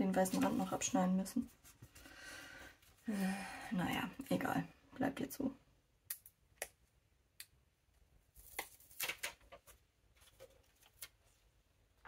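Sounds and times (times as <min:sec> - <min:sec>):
paper sticker clicks and rustles: 0:08.4 - 0:11.2.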